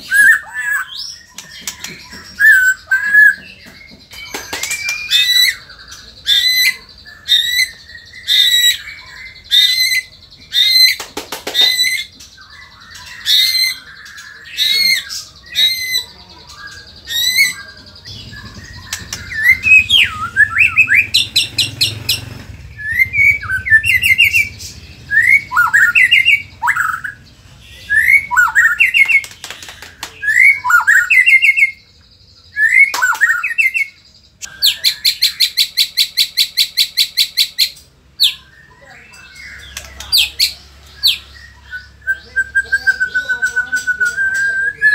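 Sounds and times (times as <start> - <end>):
bird singing: 0.0 - 44.9
rising whistled bird notes: 11.6 - 27.2, 41.0 - 44.9.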